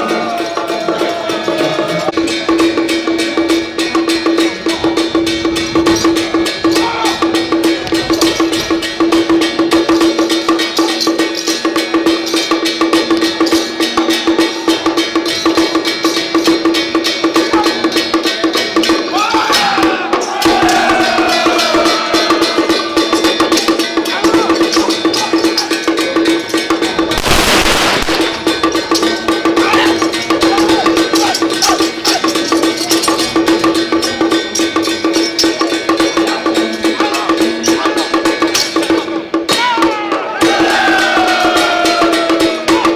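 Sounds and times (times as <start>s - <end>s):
drum gongs and cymbals beating fast: 0.0s - 42.9s
voices crying out: 6.6s - 7.5s, 19.1s - 23.2s, 29.0s - 33.2s, 39.5s - 42.9s
loud burst of noise: 27.2s - 28.4s.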